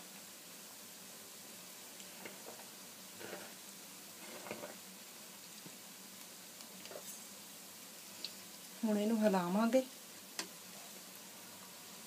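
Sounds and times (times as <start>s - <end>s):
fritters sizzling in hot oil: 0.0s - 12.0s
oil crackles and pops: 1.8s - 8.8s.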